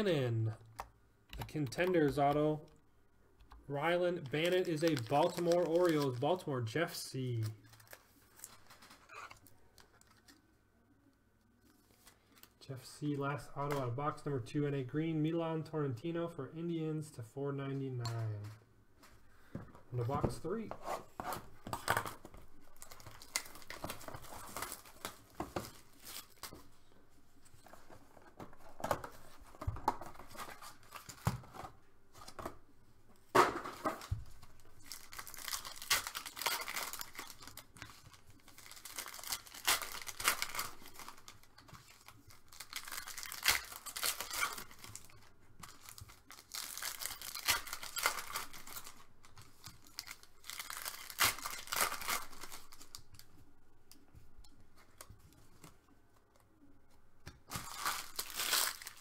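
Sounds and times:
cards being shuffled: 0:04.2 - 0:06.3
foil wrappers tearing and crinkling: 0:04.2 - 0:06.4, 0:21.8 - 0:26.5, 0:33.9 - 0:53.2, 0:57.5 - 0:59.0.

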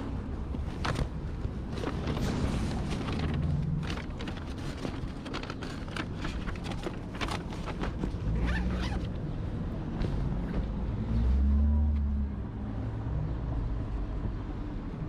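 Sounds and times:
paper bag rustling: 0:00.5 - 0:09.0
zipper being pulled closed: 0:08.4 - 0:09.1.

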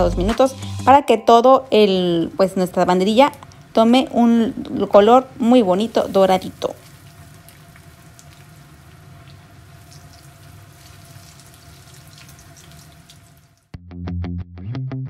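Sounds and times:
music: 0:00.0 - 0:01.5, 0:13.7 - 0:15.0
hot oil sizzling and bubbling: 0:04.9 - 0:13.7
faint crackles: 0:05.6 - 0:13.7.

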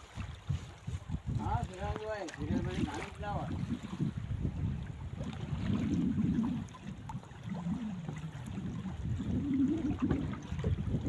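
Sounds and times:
water sloshing against boat hull: 0:00.0 - 0:11.0
wind buffeting microphone: 0:00.0 - 0:11.0.

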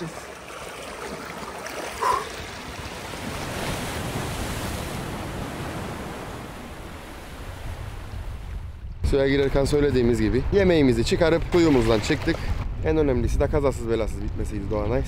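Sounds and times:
waves breaking on rocky shore: 0:00.0 - 0:08.1.

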